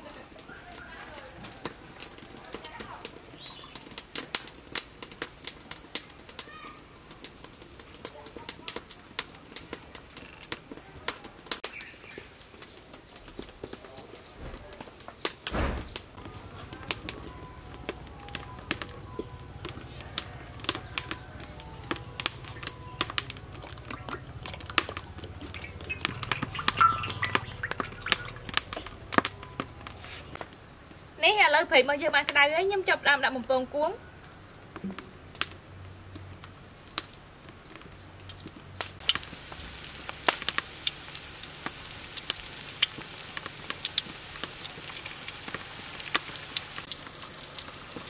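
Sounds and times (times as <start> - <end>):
wood fire crackling: 0.0 - 48.0
thump: 15.5 - 16.0
low steady rumble: 16.2 - 30.1.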